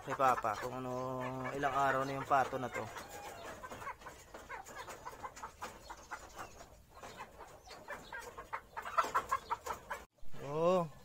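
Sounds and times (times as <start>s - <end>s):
fowl clucking: 0.0s - 10.1s.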